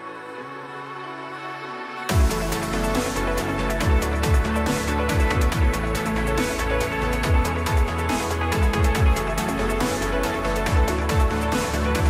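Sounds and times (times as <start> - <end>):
electronic music: 0.0 - 12.0
deep kick drums: 2.1 - 2.6, 3.8 - 6.0, 7.2 - 9.4, 10.7 - 12.0.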